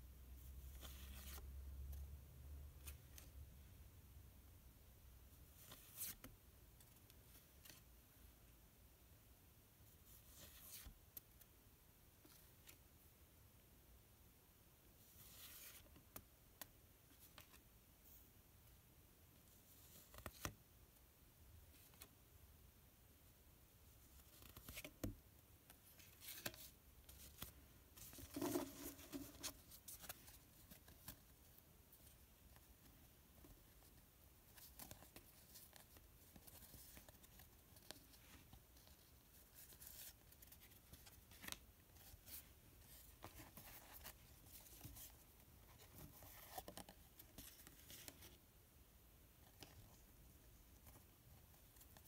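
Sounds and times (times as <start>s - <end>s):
postcards sliding and tapping: 26.0s - 31.3s.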